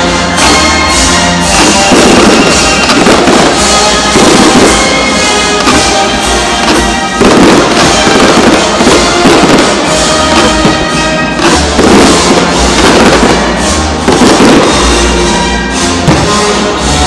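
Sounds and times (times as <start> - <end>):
fireworks bursting: 0.0 - 17.0
loud music playing: 0.0 - 17.0.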